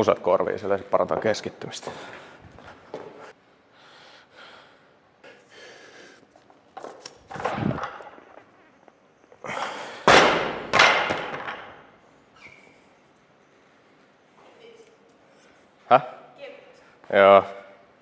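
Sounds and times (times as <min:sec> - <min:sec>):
barbell dropped on platform banging: 0:10.0 - 0:11.8.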